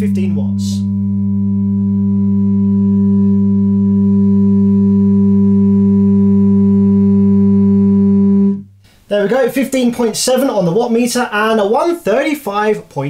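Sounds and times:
steady sine test tone: 0.0s - 8.8s.

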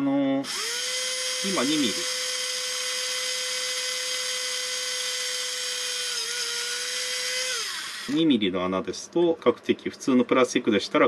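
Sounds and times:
small drill drilling plastic: 0.4s - 8.4s.

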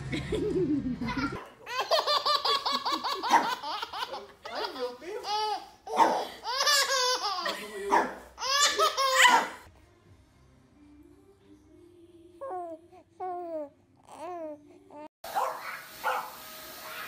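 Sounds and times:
toddler laughing: 0.4s - 9.4s.

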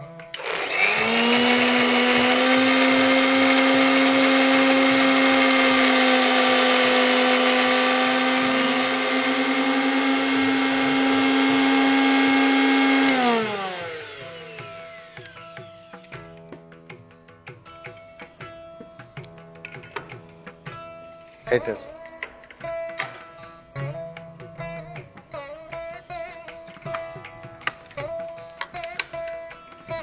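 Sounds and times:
mixer grinder motor whine: 0.3s - 15.8s.

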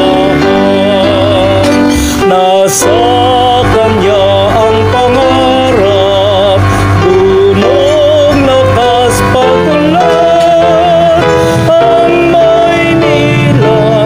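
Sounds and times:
instrumental chords and bass: 0.0s - 14.0s
person singing a hymn with vibrato: 0.0s - 14.0s.

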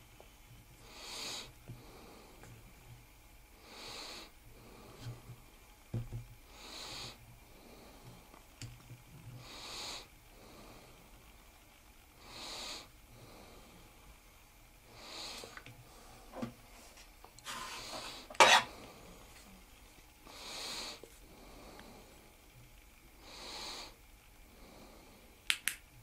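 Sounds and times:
slow breathing: 0.8s - 2.8s, 3.5s - 5.5s, 6.4s - 8.4s, 9.3s - 11.4s, 12.2s - 14.2s, 20.2s - 22.4s.

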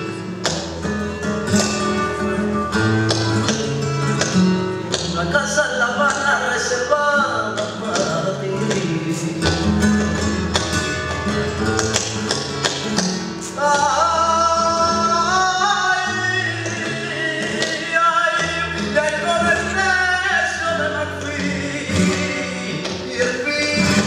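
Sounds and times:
flamenco singer: 0.0s - 24.0s
person singing: 13.4s - 24.0s.

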